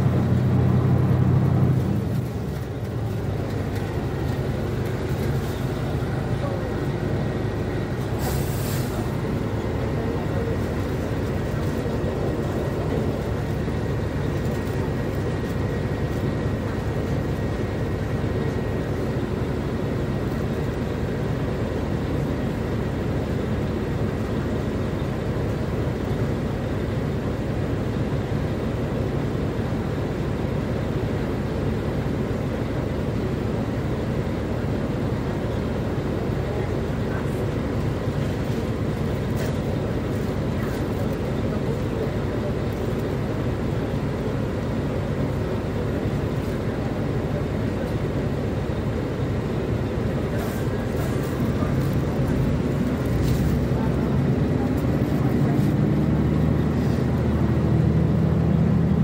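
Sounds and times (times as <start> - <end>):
bus diesel engine rumbling: 0.0 - 59.0
short hiss: 8.2 - 9.1.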